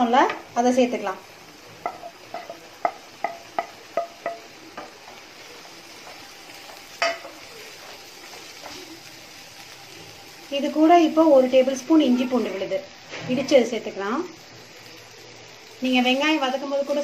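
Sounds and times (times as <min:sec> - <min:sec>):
food sizzling in a pan: 0:00.0 - 0:17.0
wooden spatula knocking a pan: 0:01.8 - 0:08.8.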